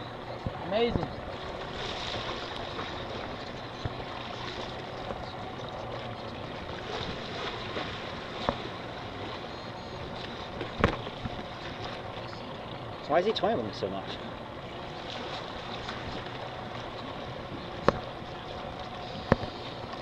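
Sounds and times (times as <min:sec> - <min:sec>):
water around boat: 0:00.0 - 0:20.0.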